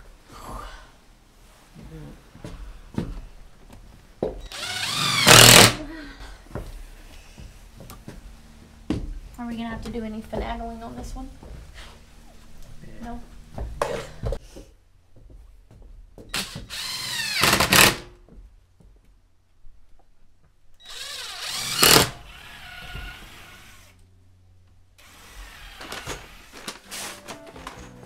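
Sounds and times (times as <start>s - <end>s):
cordless drill whining: 4.5s - 5.8s, 16.4s - 18.0s, 20.8s - 24.0s, 25.0s - 26.8s.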